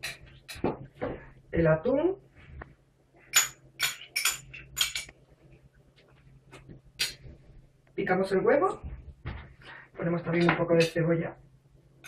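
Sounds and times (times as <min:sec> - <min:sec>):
tin clinking: 0:03.3 - 0:05.1.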